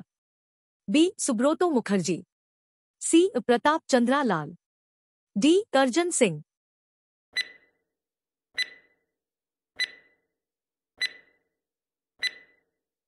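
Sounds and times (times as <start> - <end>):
electronic ticks with ringing tone: 7.4 - 7.8, 8.6 - 9.1, 9.8 - 10.3, 11.0 - 11.6, 12.2 - 12.8.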